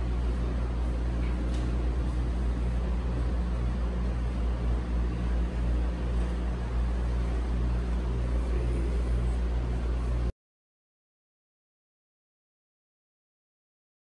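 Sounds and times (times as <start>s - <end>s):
low hum and rumble: 0.0s - 10.3s.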